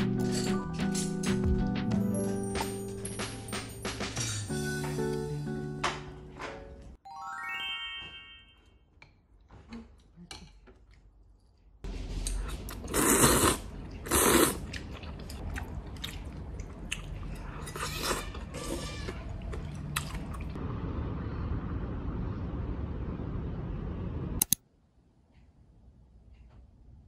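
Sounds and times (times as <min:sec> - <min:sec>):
chewing: 0:12.3 - 0:18.4, 0:19.1 - 0:20.6.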